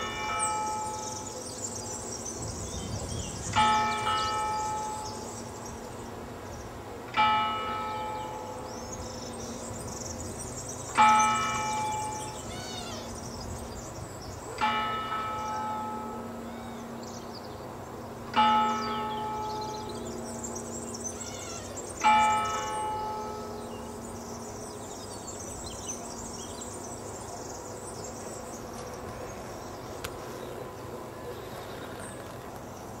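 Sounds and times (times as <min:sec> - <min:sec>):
church bell tolling: 0:00.0 - 0:01.4, 0:03.5 - 0:05.5, 0:07.1 - 0:12.5, 0:14.6 - 0:17.4, 0:18.0 - 0:24.8.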